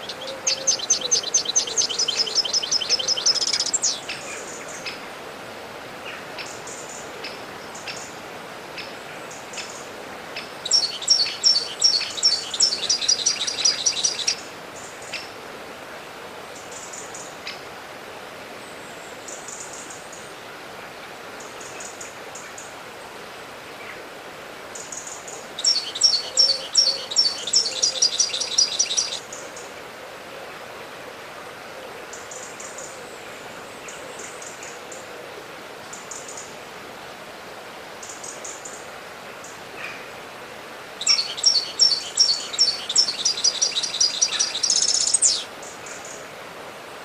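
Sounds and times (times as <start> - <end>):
songbird chirping: 0.0 - 5.0, 8.8 - 15.3, 24.7 - 29.8, 41.0 - 46.3
background hiss: 0.0 - 47.0.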